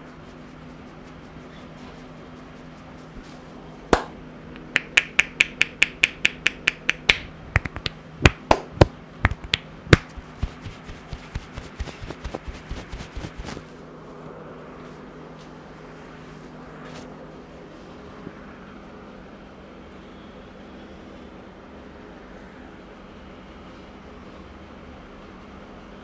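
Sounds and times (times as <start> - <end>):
hair snapping between fingers: 3.9 - 12.9.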